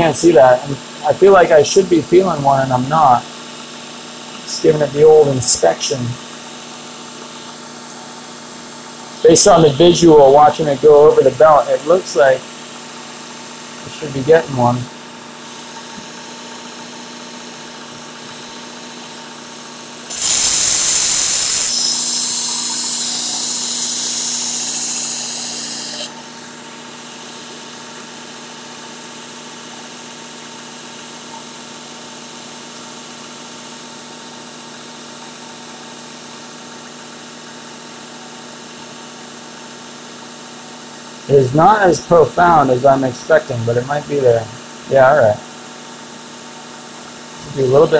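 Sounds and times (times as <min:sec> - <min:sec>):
knife grinding on abrasive belt: 0:20.1 - 0:26.1
sharpener motor humming: 0:20.1 - 0:26.2.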